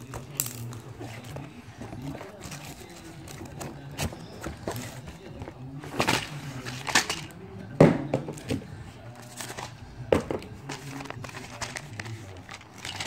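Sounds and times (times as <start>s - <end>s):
paper wrapping crumpling and tearing: 0.0s - 7.4s, 10.6s - 13.0s.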